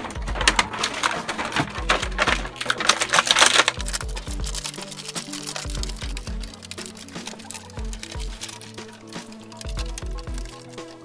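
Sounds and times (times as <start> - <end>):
background music with bass: 0.0 - 11.0
plastic packaging crinkling: 0.0 - 11.0.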